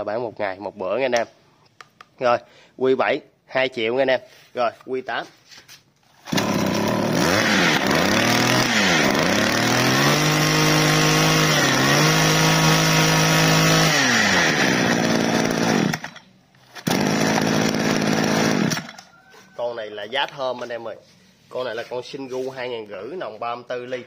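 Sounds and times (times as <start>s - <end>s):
brush-cutter engine revving: 6.2s - 19.1s.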